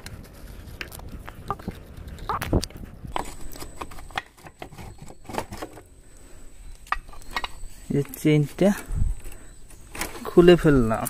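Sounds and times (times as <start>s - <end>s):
hand tools clicking and clinking: 6.8s - 11.0s.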